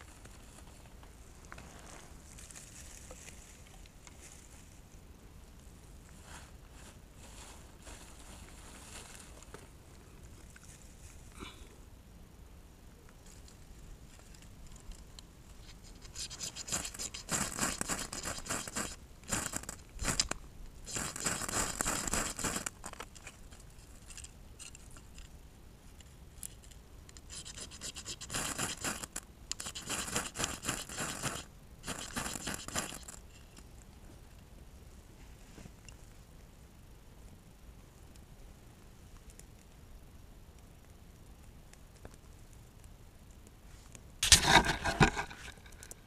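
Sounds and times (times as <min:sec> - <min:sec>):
rasping scraping: 0:15.7 - 0:20.2, 0:44.2 - 0:46.0.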